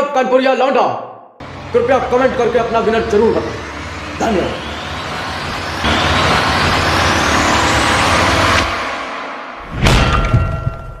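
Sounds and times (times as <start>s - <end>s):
rising whoosh sweep: 3.2s - 10.4s.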